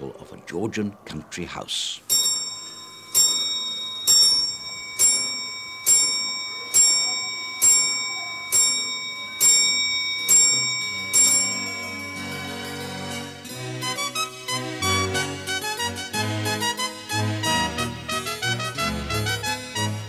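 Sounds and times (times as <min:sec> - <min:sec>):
clock bell striking: 0:02.1 - 0:17.0
soft music: 0:02.4 - 0:20.0.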